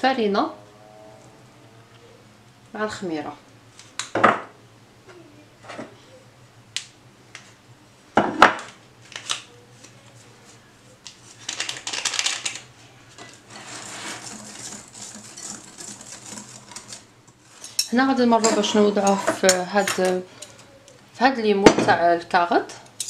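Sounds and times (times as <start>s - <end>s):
whisk beating batter in glass bowl: 13.5s - 17.0s.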